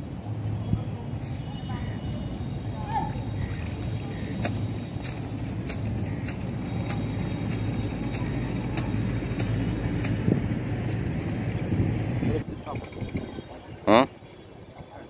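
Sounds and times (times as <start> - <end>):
low engine rumble: 0.0 - 14.0.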